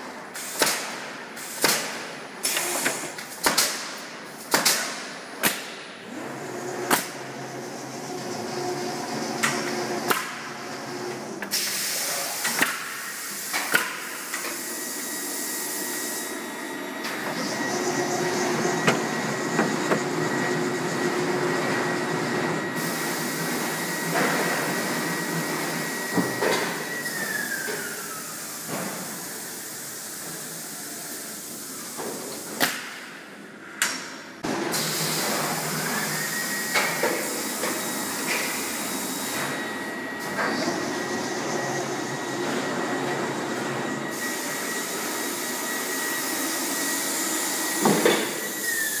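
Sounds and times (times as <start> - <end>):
nailing machine whine: 13.5 - 28.3.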